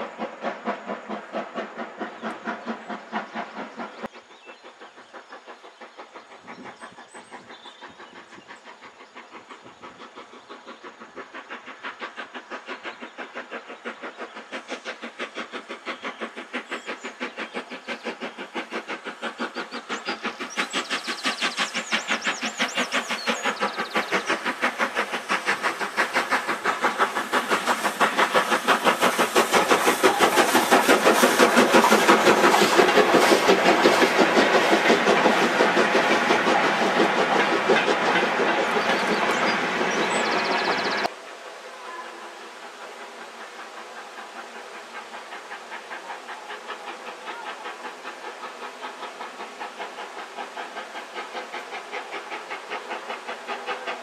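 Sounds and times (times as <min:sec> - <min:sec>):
steam locomotive chuffing: 0:00.0 - 0:54.0.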